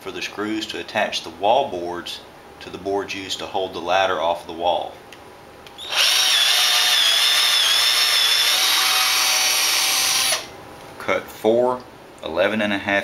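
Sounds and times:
cordless drill whining: 5.8 - 10.5.

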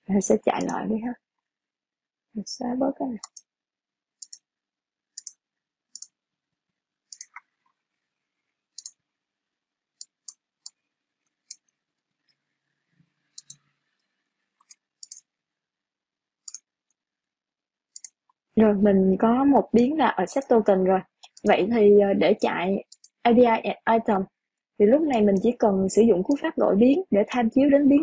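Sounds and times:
mouse and keyboard clicks: 0.6 - 0.8, 3.2 - 3.4, 4.2 - 4.4, 5.2 - 6.1, 7.1 - 7.5, 8.8 - 9.0, 13.3 - 13.6, 14.6 - 15.3, 16.4 - 16.6, 17.9 - 18.2, 22.9 - 23.2.

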